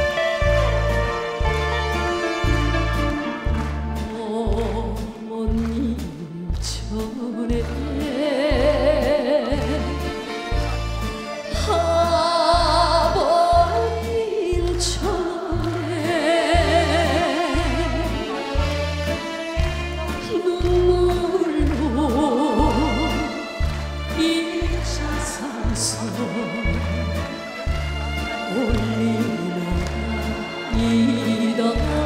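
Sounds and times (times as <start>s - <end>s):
live band with bass beat: 0.0s - 32.0s
woman singing with vibrato: 4.0s - 10.3s, 11.5s - 18.6s, 20.2s - 27.3s, 28.4s - 32.0s.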